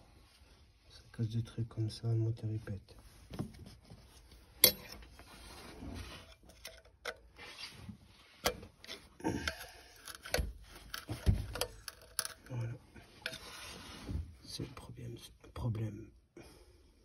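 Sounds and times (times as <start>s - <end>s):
sharp clicks and knocks: 10.0s - 12.6s
faint rubbing: 13.0s - 14.7s.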